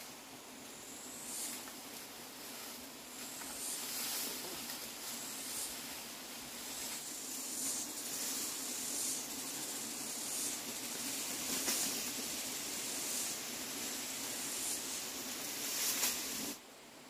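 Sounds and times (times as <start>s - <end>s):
bee swarm buzzing: 0.0s - 16.6s
pulsing hiss: 0.0s - 17.0s.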